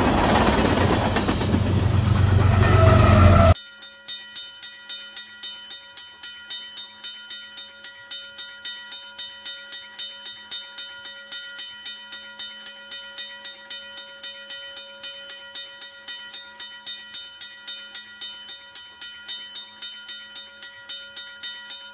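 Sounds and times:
freight train rhythmic clatter: 0.0s - 3.6s.

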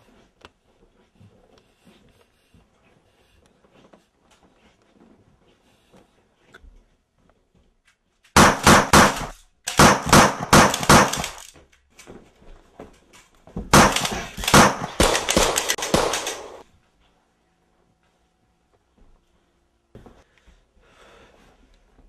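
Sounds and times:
rapid gunshots: 8.4s - 11.5s, 13.7s - 16.6s.

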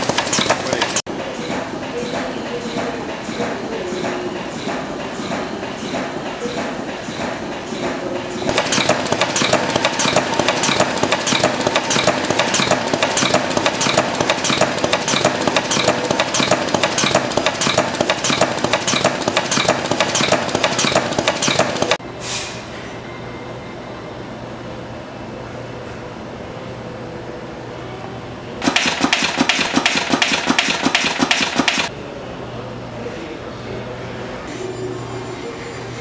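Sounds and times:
machine hum: 0.0s - 2.6s, 8.1s - 22.0s
machinery clattering metallic clacks: 0.0s - 22.0s, 28.6s - 31.9s.

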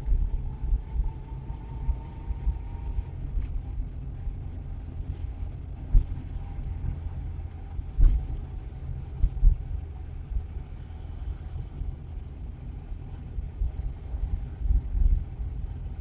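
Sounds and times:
engine and road rumble: 0.0s - 16.0s.

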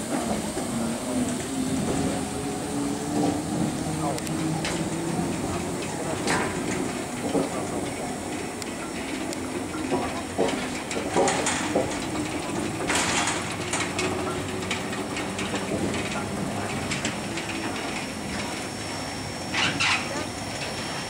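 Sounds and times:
steam locomotive hissing: 0.0s - 21.0s
metallic clicks and clanks: 4.2s - 18.7s.

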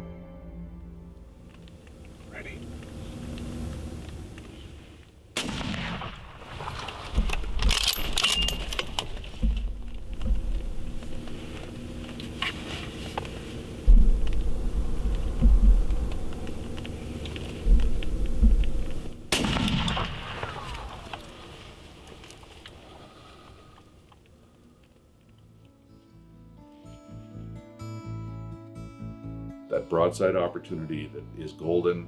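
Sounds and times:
rifle gunshot: 5.4s - 8.4s, 19.3s - 21.4s
low rumbling thumps on microphone: 9.3s - 11.6s, 13.8s - 19.3s.

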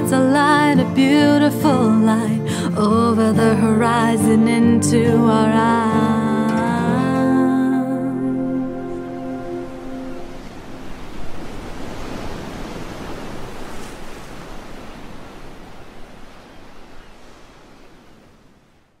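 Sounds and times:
rushing surf-like noise: 8.1s - 19.0s.

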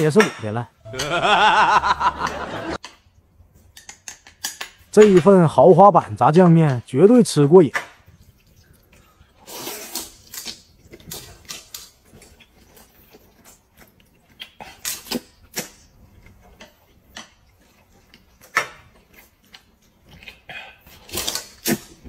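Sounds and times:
person slurping noodles: 8.7s - 11.2s.

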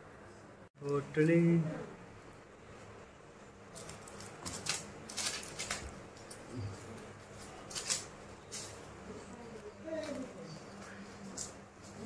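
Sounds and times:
plastic bag crinkling: 3.7s - 12.0s.

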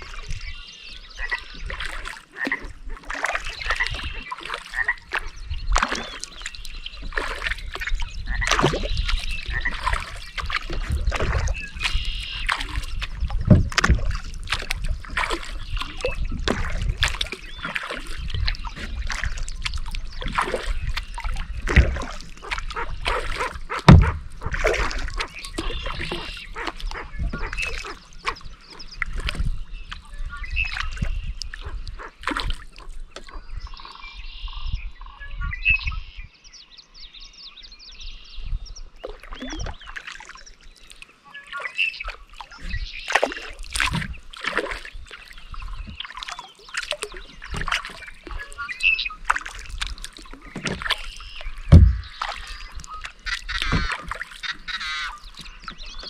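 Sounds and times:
kayak paddle dipping and dripping: 0.0s - 35.2s, 37.3s - 56.0s
birds calling: 0.0s - 56.0s
loud thump: 23.9s - 24.3s, 51.7s - 52.1s.

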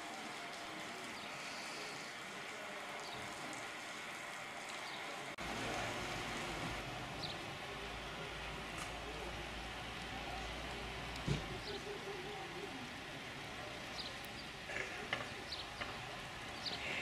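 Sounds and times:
distant traffic hiss: 0.0s - 17.0s.

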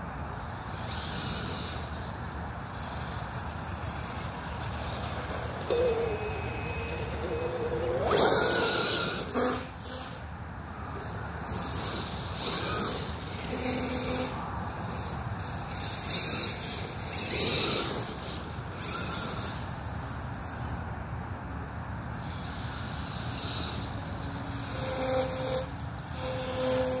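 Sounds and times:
electric motor whining: 4.8s - 14.4s.

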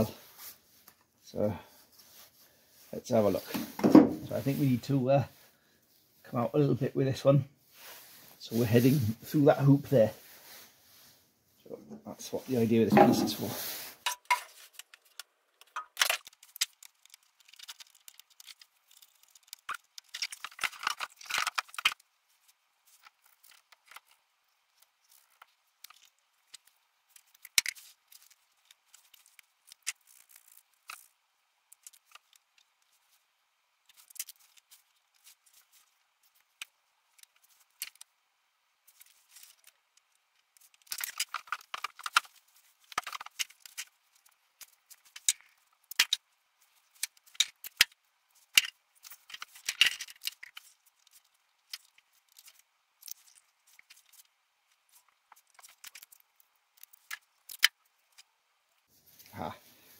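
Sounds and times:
hard plastic pieces clicking: 14.1s - 22.0s, 38.9s - 46.2s, 46.9s - 54.3s, 56.8s - 58.3s.

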